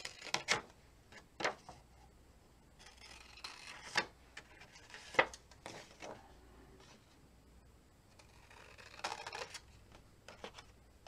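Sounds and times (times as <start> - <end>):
faint paper rustling: 2.9 - 7.2.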